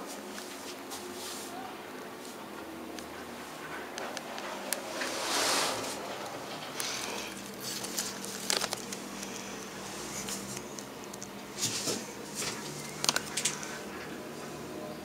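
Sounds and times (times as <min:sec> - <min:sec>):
rustling hisses: 0:04.8 - 0:08.0.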